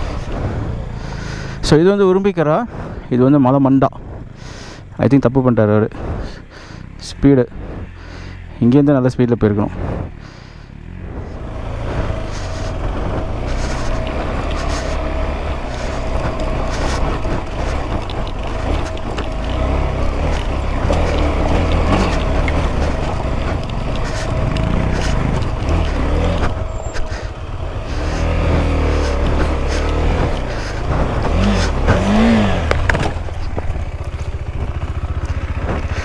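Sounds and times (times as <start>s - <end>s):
motorcycle engine under load: 0.0s - 36.0s
rocks knocking and clattering: 29.2s - 36.0s.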